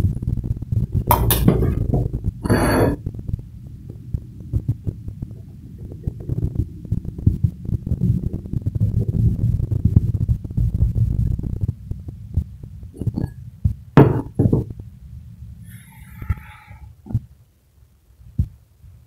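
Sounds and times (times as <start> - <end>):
metal spoon scraping a plate: 1.1 - 3.0.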